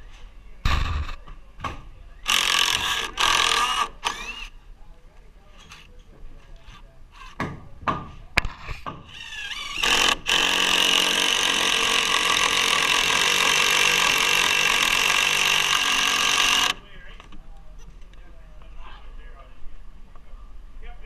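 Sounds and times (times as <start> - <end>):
impact driver driving screw into wood: 2.3 - 4.5, 8.4 - 16.8.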